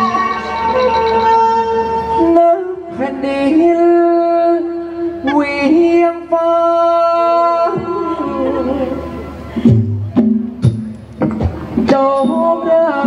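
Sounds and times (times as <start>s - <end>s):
man singing long ornamented notes: 0.0s - 9.6s, 11.9s - 13.0s.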